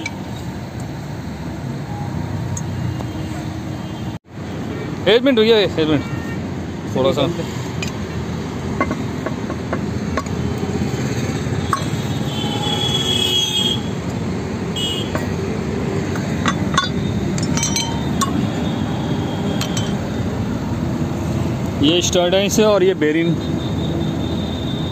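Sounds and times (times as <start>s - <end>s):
steel tools clinking on metal: 16.2s - 18.5s, 19.4s - 20.0s.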